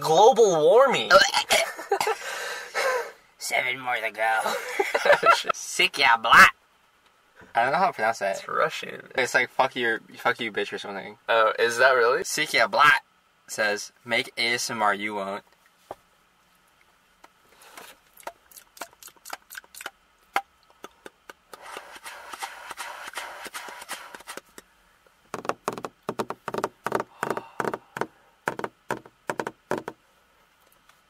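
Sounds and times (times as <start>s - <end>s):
breathy hissing: 2.1s - 3.2s, 26.9s - 28.4s
sharp mouth and hand clicks: 17.8s - 22.5s.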